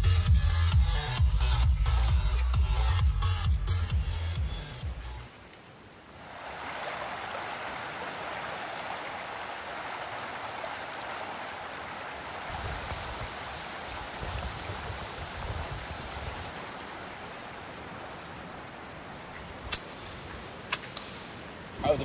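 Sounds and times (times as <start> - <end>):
rain: 4.3 - 22.0
rushing stream water: 4.7 - 22.0
wind buffeting the microphone: 12.5 - 16.5.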